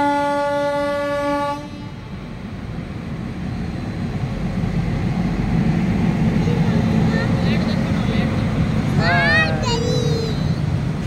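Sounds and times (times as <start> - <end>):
locomotive horn: 0.0 - 2.1
train rumbling past: 0.0 - 11.0.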